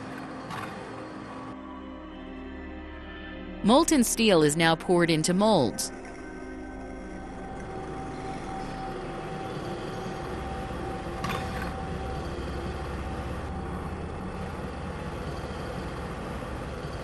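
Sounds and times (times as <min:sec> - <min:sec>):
heavy machinery rumbling: 0:07.2 - 0:17.0.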